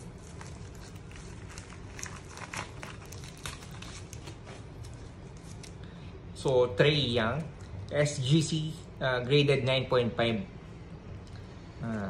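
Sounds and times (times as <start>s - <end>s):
plastic mailer crinkling: 0.0s - 5.8s
low steady hum: 0.0s - 12.0s.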